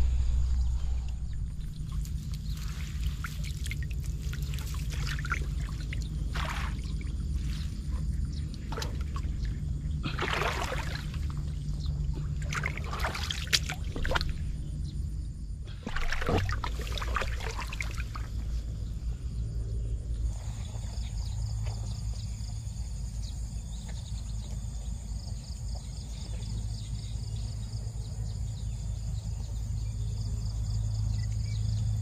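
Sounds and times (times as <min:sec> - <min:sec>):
steady low rumble: 0:00.0 - 0:32.0
water splashing and trickling: 0:00.8 - 0:14.7, 0:15.7 - 0:18.8.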